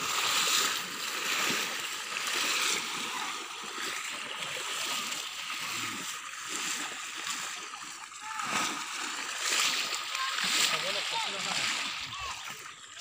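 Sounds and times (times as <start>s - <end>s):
people wading through water: 0.0s - 13.0s.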